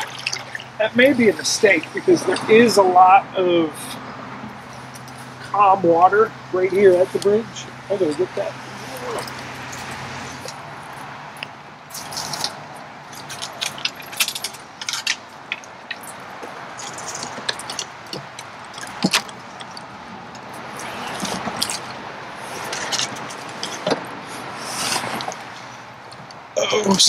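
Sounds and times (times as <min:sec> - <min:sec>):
gear knocking against tree trunk: 0:09.2 - 0:24.2.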